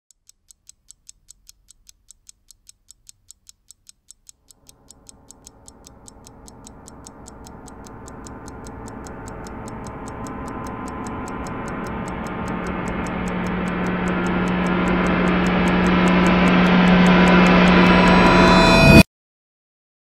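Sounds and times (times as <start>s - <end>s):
clock-like ticking: 0.1s - 19.0s
sustained music: 4.7s - 19.0s.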